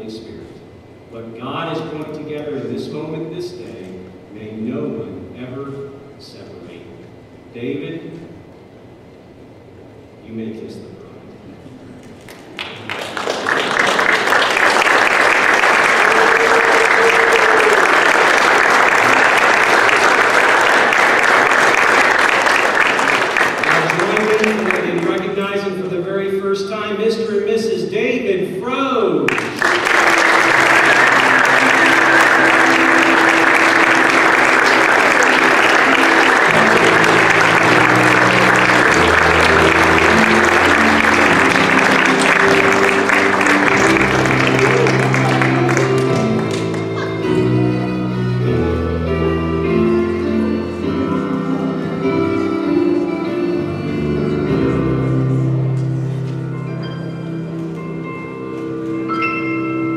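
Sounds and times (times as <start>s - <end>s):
congregation applauding: 12.0s - 25.8s, 29.3s - 49.3s.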